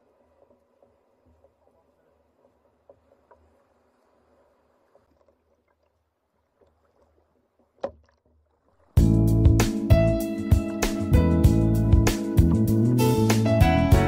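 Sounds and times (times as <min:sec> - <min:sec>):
water sloshing around kayak: 0:00.0 - 0:09.0
small knocks: 0:06.6 - 0:08.6.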